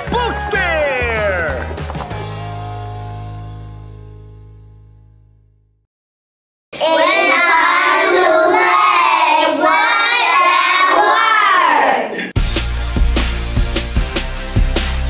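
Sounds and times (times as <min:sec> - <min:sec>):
music with drum beat: 0:00.0 - 0:02.4, 0:12.4 - 0:15.0
children singing in unison: 0:06.8 - 0:12.2.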